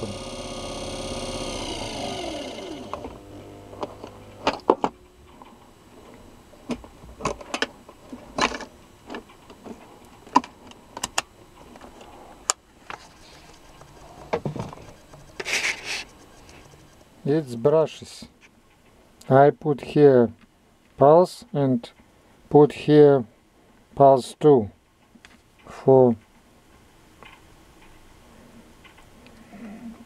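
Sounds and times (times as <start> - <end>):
electric motor whine winding down: 0.0 - 17.8.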